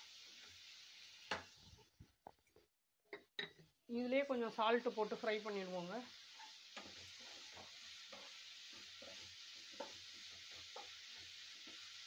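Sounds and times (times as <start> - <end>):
onions sizzling in oil: 0.0 - 1.9, 3.9 - 12.0.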